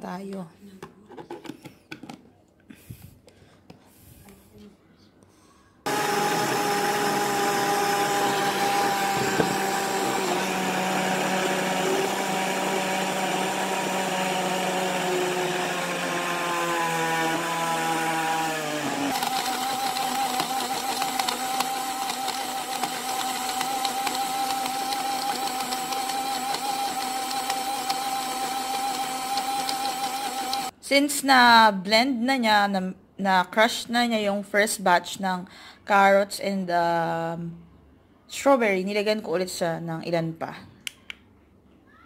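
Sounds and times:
portable blender running: 5.9 - 30.8.

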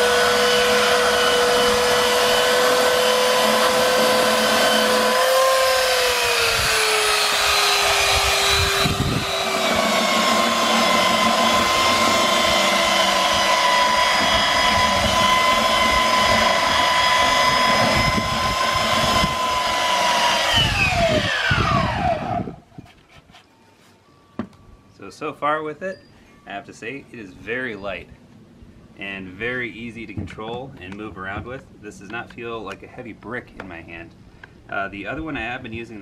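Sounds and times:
belt sander motor whine: 0.0 - 22.6.

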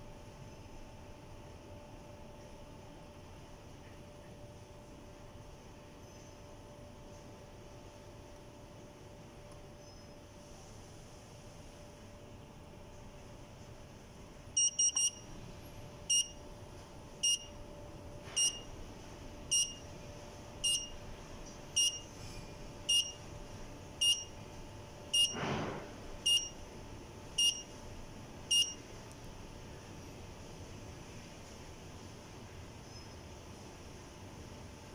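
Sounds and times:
receiver buzzer beeping: 14.6 - 15.3, 16.1 - 16.4, 17.2 - 17.5, 18.3 - 18.7, 19.5 - 19.8, 20.6 - 21.0, 21.8 - 22.1, 22.9 - 23.2, 24.0 - 24.4, 25.1 - 25.4, 26.2 - 26.6, 27.4 - 27.7, 28.5 - 28.8.

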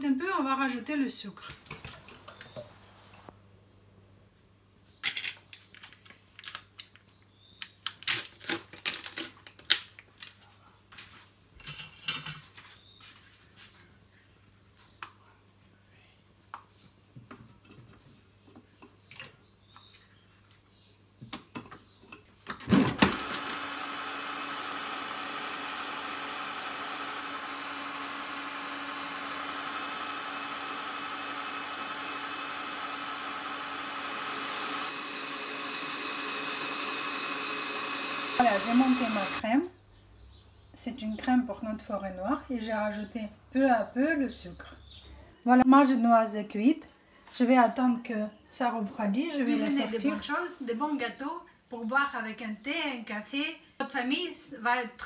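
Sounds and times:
stand mixer motor running: 22.9 - 39.4.

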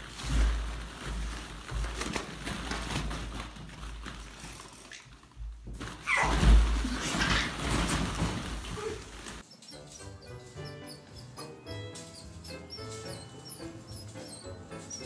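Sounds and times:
plastic balls rattling: 0.0 - 9.4.

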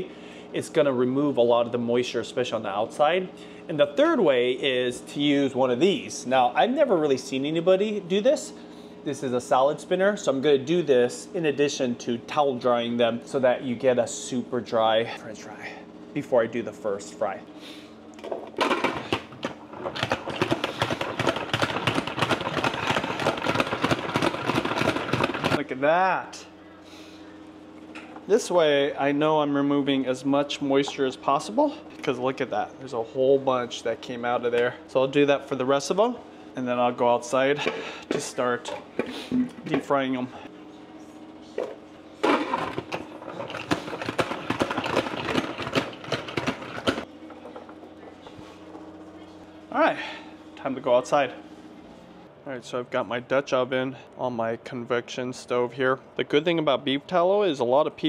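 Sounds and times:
salad spinner rattling whir: 18.6 - 25.6, 42.2 - 47.5.

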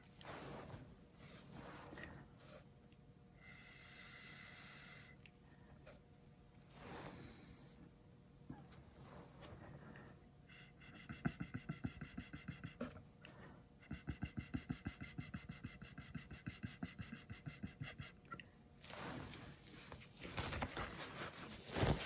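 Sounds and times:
mini blower puffing air: 6.7 - 7.8.

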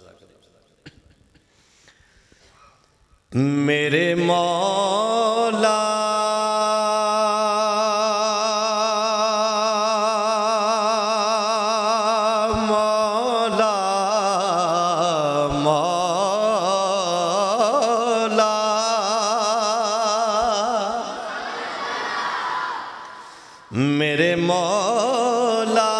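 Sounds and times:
man singing through loudspeaker: 3.3 - 21.3, 23.7 - 25.9.

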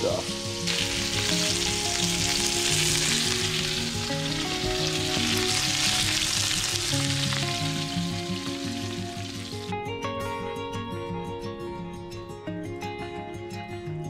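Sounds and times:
fish sizzling in hot oil: 0.0 - 9.7.

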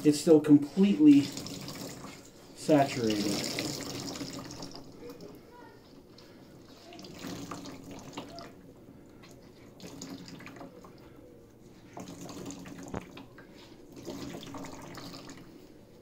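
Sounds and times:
water splashing into plastic tub: 1.1 - 2.3, 2.9 - 5.4, 6.9 - 8.6, 9.2 - 11.0, 11.9 - 15.5.

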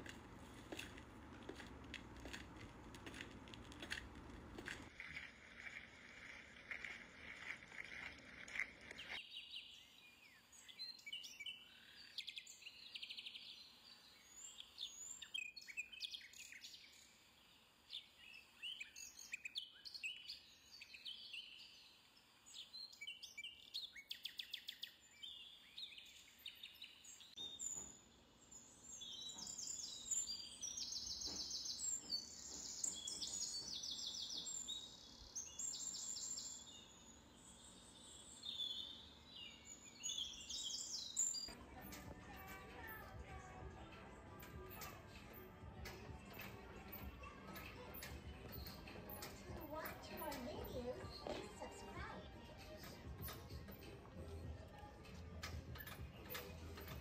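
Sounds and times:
birds chirping and calling: 29.0 - 42.7, 44.4 - 54.0, 55.1 - 57.0.

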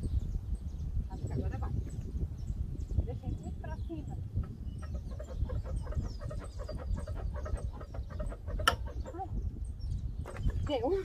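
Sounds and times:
chickens clucking: 4.4 - 9.4.

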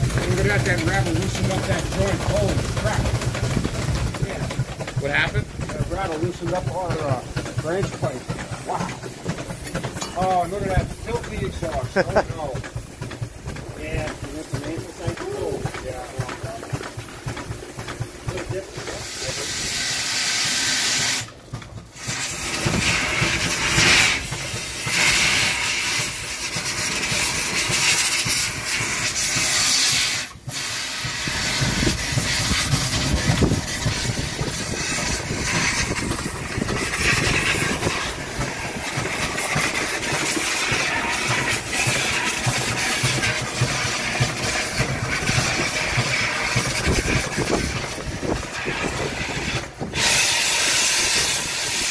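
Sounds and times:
steam hissing: 0.0 - 51.9.

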